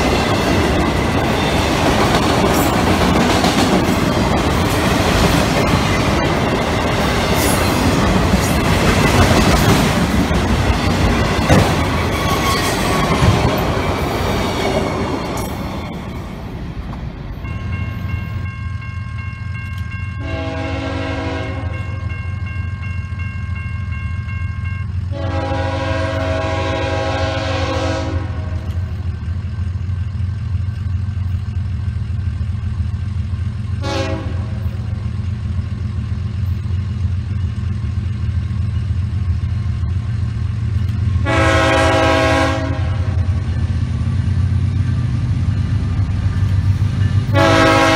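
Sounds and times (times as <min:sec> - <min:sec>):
freight train cars clattering: 0:00.0 - 0:47.9
locomotive air horn: 0:20.2 - 0:21.9, 0:25.1 - 0:28.8, 0:33.8 - 0:34.8, 0:41.2 - 0:43.2, 0:47.3 - 0:47.9.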